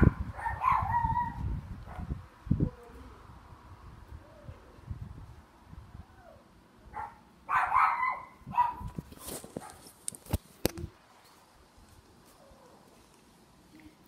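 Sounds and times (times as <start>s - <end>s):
dog barking: 0.0s - 2.1s, 6.9s - 8.9s.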